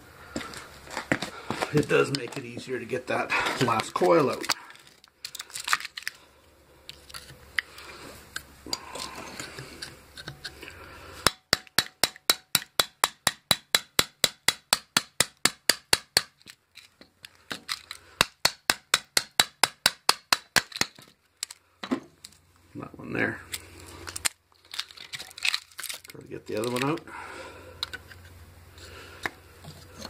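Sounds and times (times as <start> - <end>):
hammer striking metal bar: 11.2 - 16.3.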